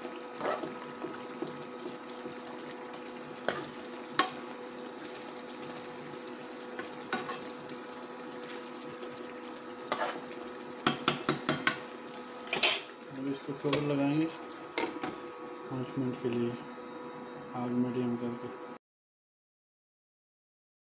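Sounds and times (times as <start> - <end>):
bubbling sizzle: 0.0 - 15.3
metal spoon stirring in pan: 0.3 - 1.5, 6.7 - 7.6, 9.8 - 13.0
spoon knocking against pan: 10.8 - 11.8.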